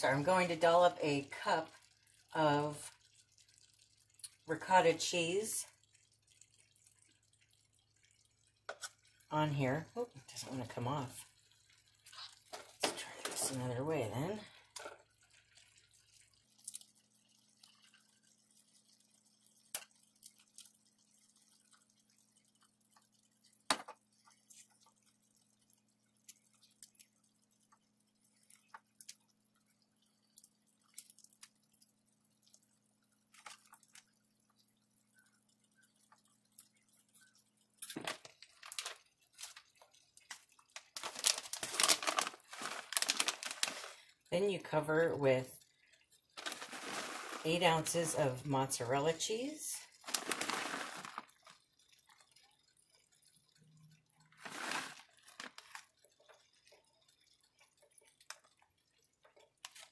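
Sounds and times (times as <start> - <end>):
plastic bag crinkling: 37.8 - 44.1, 46.4 - 48.4, 49.9 - 51.8, 54.3 - 56.2.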